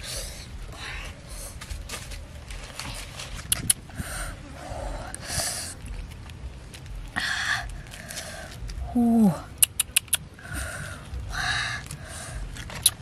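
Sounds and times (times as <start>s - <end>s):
leaves rustling and scraping: 0.0s - 9.4s
low steady rumble: 0.0s - 13.0s
sharp clicks: 9.5s - 10.3s.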